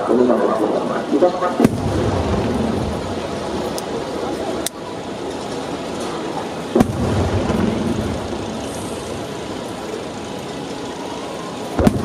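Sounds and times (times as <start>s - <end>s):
steady background noise: 0.0s - 12.0s
firework bursting with boom: 1.6s - 4.6s, 6.7s - 10.0s, 11.7s - 12.0s
low rumble: 1.7s - 5.9s, 6.7s - 10.4s.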